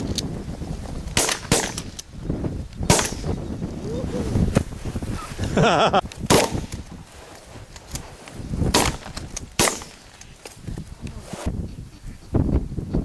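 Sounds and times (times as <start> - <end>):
shotgun shots: 1.2 - 1.9, 2.9 - 3.3, 6.3 - 6.8, 8.7 - 10.0.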